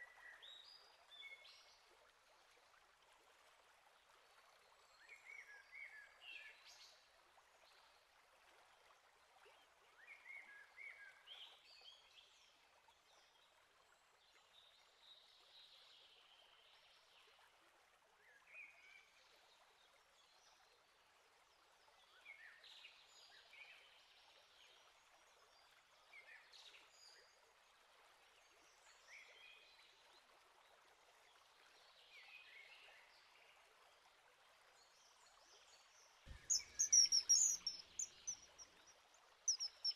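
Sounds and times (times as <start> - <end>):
faint steady hiss: 20.8 - 39.9
small birds calling and singing: 36.3 - 38.9, 39.5 - 39.9.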